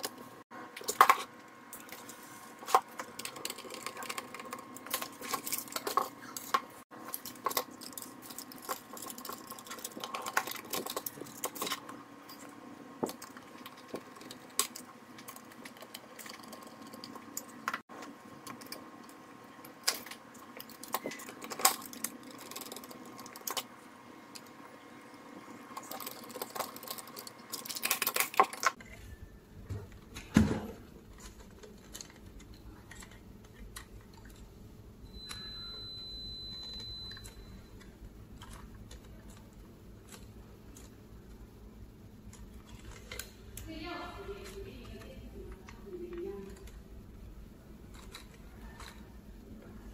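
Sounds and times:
faint hum: 0:00.0 - 0:49.9
clicks and clatter of handling: 0:31.1 - 0:34.4.

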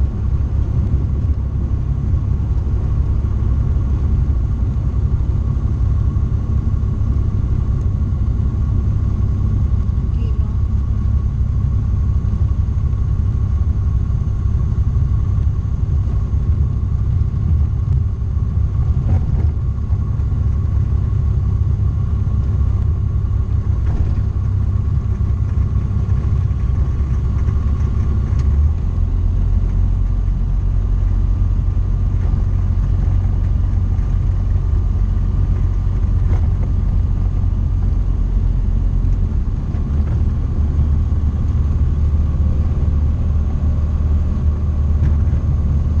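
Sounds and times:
aircraft engine and propeller rumble: 0:00.0 - 0:46.0.

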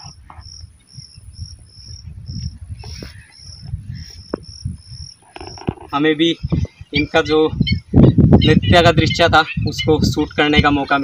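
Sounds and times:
high insect whine: 0:00.0 - 0:06.0
crickets chirping: 0:00.0 - 0:08.4
low rumble on microphone: 0:00.0 - 0:10.9.

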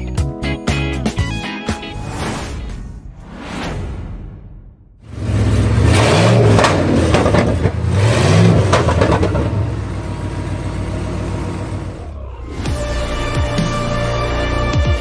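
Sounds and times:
engine revving: 0:05.0 - 0:13.7.

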